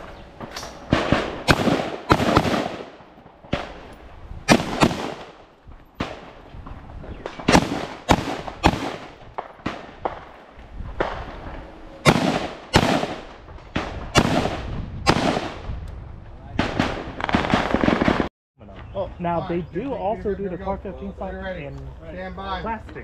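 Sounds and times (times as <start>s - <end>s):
rifle shots with echo: 0.6s - 3.9s, 4.5s - 6.4s, 7.2s - 10.4s, 12.0s - 15.7s, 16.6s - 18.3s.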